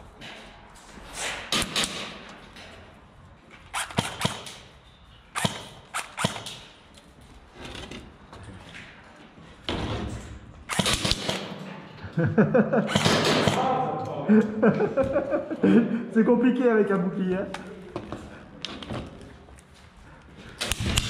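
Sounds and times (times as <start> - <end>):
airsoft guns firing bursts: 3.8 - 4.6, 5.4 - 6.6, 10.7 - 11.6, 12.8 - 13.7.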